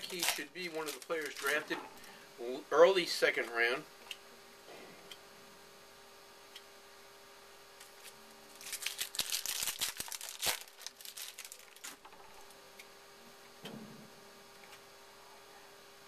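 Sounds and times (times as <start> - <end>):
wrapper snapping: 0.0 - 1.7, 7.8 - 12.6
wrapper crackling and rustling: 0.0 - 2.1, 7.8 - 12.6.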